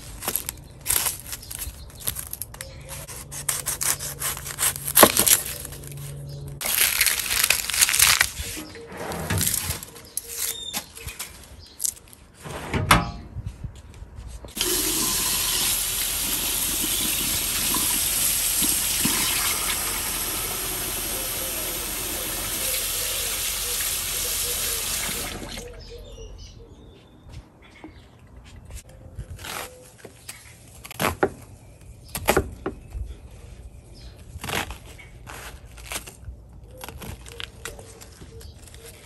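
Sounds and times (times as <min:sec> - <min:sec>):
faucet running into steel sink: 0:14.6 - 0:25.6.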